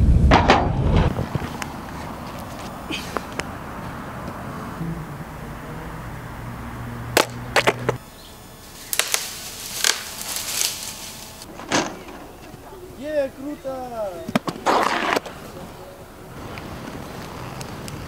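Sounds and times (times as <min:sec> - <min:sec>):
steady low hum: 0:01.1 - 0:14.6.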